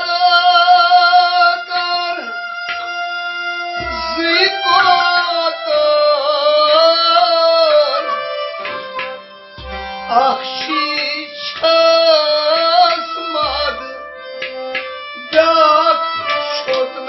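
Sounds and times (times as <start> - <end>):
man singing: 0.0 - 2.5, 3.8 - 8.6, 10.0 - 14.1, 15.2 - 17.0
bowed string instrument: 0.0 - 17.0
harmonium chords: 0.0 - 17.0.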